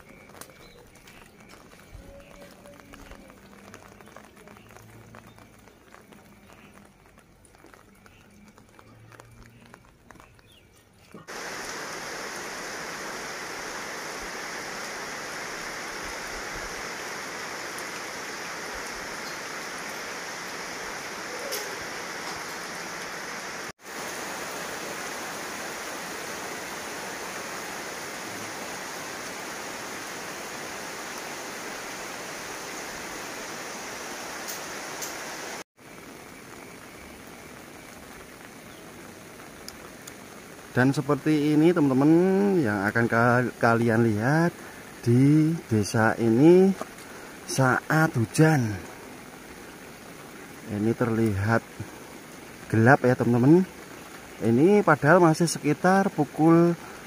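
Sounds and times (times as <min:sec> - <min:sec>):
rain falling: 0:00.0 - 0:57.0.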